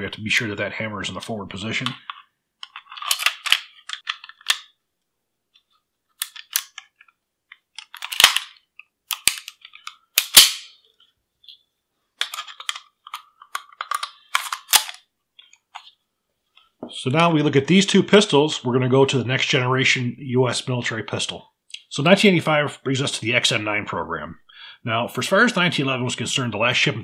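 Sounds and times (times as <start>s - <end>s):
pistol parts metal clicks and clacks: 1.9s - 4.8s, 6.2s - 10.8s, 12.2s - 15.0s.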